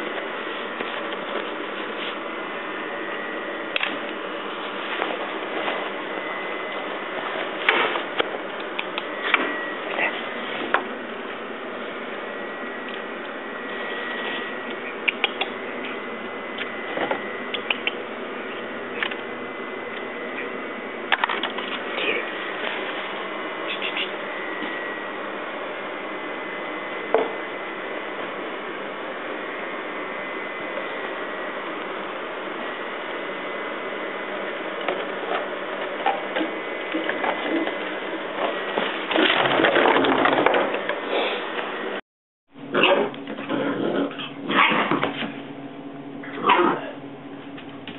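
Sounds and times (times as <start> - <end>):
plastic bottles knocking and crinkling: 38.8 - 40.9.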